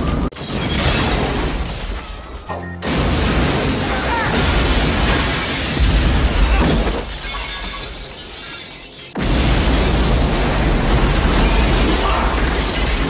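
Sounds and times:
glass breaking: 0.3 - 13.0
explosion blast: 2.8 - 7.2, 9.2 - 13.0.

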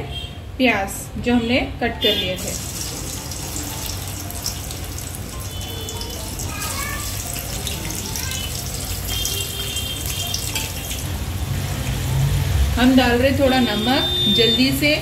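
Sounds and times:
onions sizzling in hot oil: 2.4 - 13.1.

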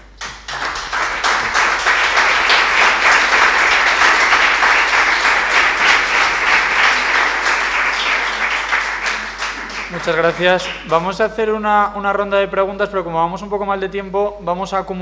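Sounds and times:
audience applauding: 0.1 - 11.0.

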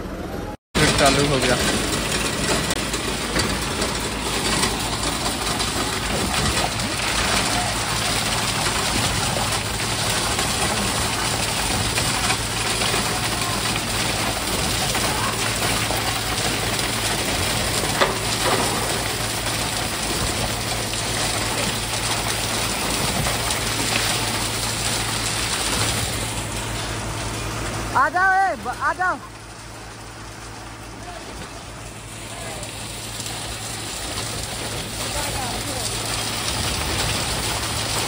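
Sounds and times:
concrete pump running: 0.0 - 38.0
wet concrete pouring: 0.8 - 38.0.

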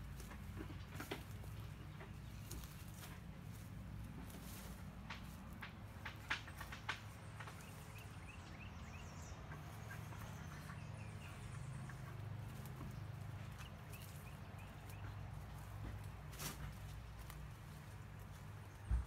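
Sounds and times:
footsteps crunching through leaves: 0.0 - 6.0, 11.4 - 19.0.

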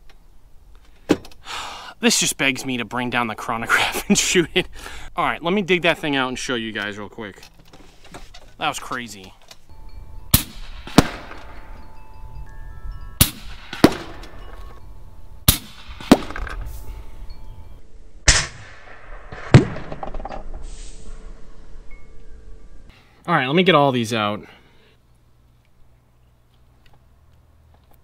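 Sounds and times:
air rifle shots cracking: 10.3 - 11.6, 13.2 - 14.4, 15.5 - 16.6, 18.2 - 20.1.

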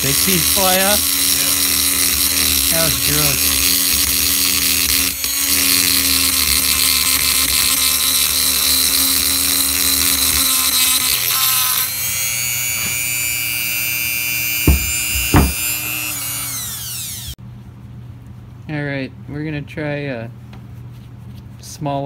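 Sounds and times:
rotary tool grinding whine: 0.0 - 17.4
sharp knocks: 14.7 - 15.7.

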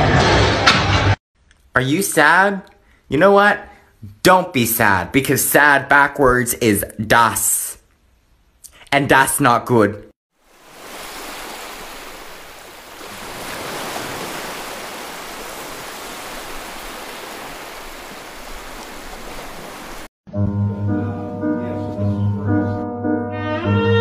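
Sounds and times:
water rushing in a pool: 10.4 - 20.1.

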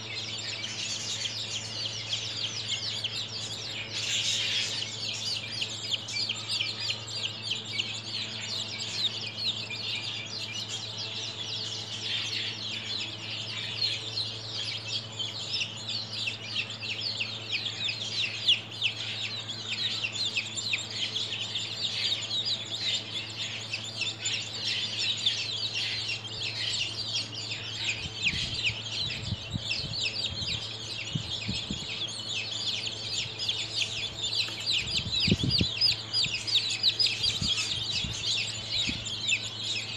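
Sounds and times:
baby chicks peeping: 0.0 - 39.9
steady low hum: 0.0 - 39.9.

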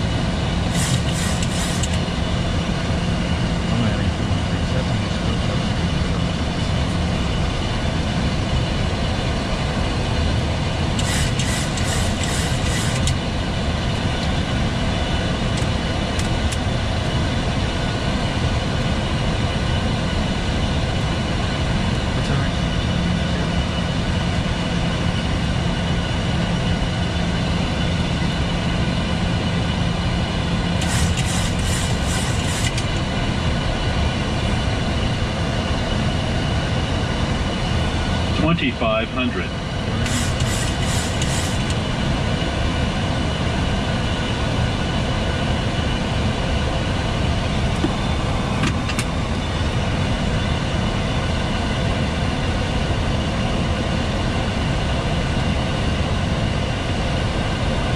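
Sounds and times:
rushing air: 0.0 - 2.3, 30.8 - 38.4, 39.6 - 42.1
low hum: 0.0 - 57.9.

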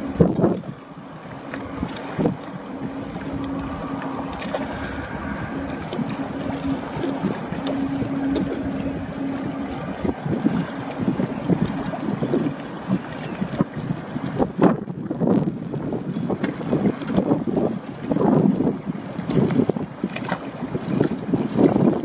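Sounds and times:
low hum: 0.0 - 15.8
wind buffeting microphone: 0.0 - 22.0.

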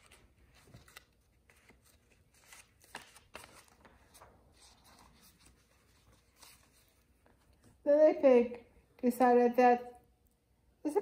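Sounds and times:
paper pages rustling: 0.0 - 7.8.

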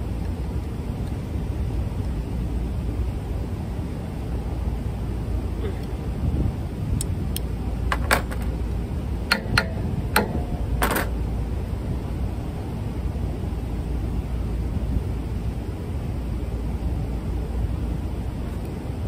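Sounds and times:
low rumble: 0.0 - 15.1
spanner clinking on metal: 9.3 - 11.2.

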